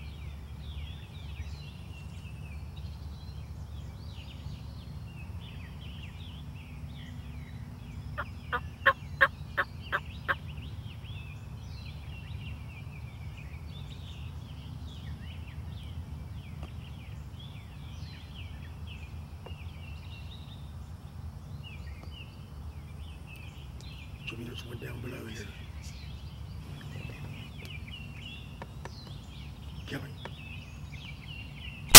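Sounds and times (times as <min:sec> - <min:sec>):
birdsong chirps: 0:00.0 - 0:31.9
wild turkey calling: 0:08.2 - 0:10.4.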